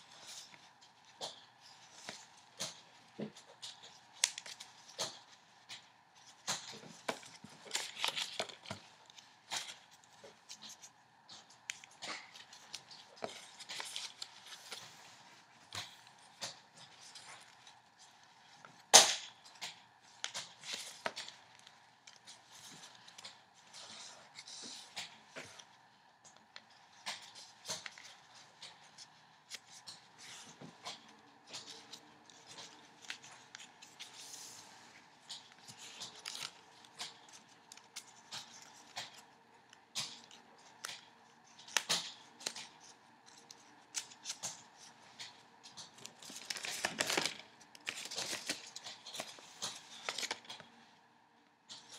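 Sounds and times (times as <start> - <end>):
paper rustling and crinkling: 0.0 - 50.9.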